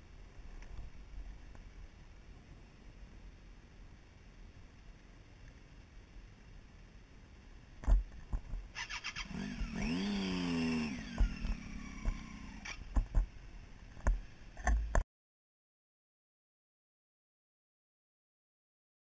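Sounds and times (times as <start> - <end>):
engine revving: 8.8 - 12.8.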